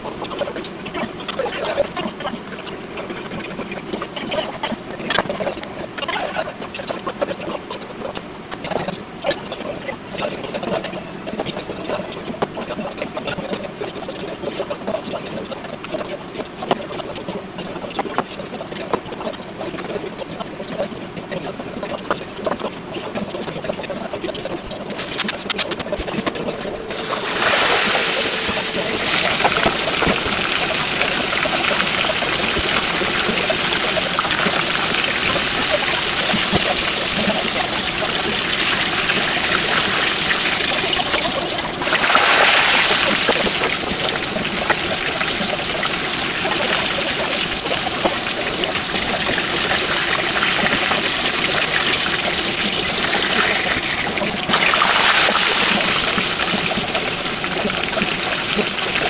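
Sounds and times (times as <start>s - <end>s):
oil sizzling and bubbling: 22.0s - 59.0s.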